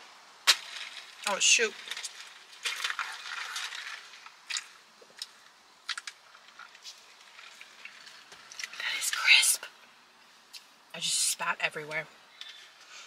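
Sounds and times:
straw crunching through ice: 0.5s - 9.4s.

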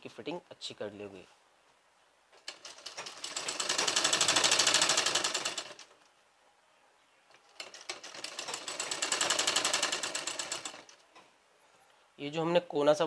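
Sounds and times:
industrial sewing machine stitching: 2.4s - 5.9s, 7.6s - 11.0s.

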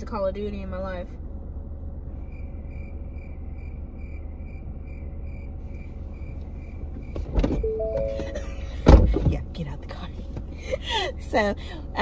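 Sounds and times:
low rumble in car cabin: 0.0s - 12.0s
car warning chime beeping: 7.6s - 8.8s.

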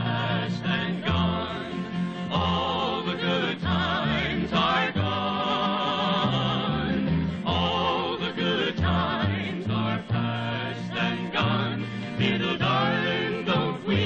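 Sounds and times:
vocal group singing in harmony: 0.0s - 14.0s
bass line: 3.6s - 8.1s.

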